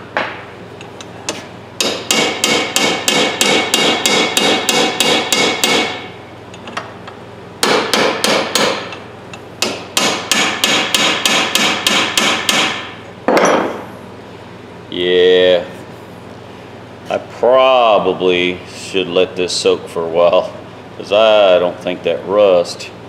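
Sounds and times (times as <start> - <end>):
hammer striking metal punch: 1.8 - 6.1, 7.6 - 9.0, 9.6 - 13.9.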